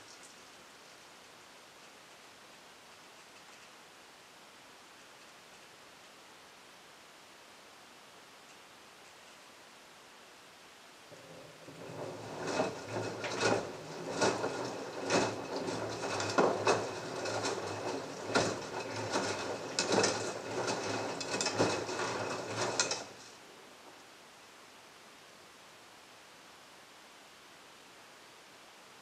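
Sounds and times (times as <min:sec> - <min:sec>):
washing machine drum turning: 0:11.1 - 0:23.2
motor hum: 0:11.1 - 0:23.3.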